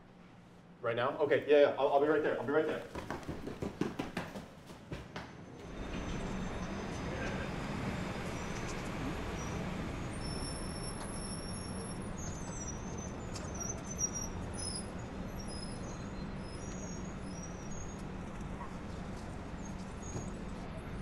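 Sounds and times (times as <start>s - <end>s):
city street traffic rumble: 5.2s - 21.0s
low hum: 5.4s - 21.0s
faint high-pitched squeals: 5.5s - 21.0s.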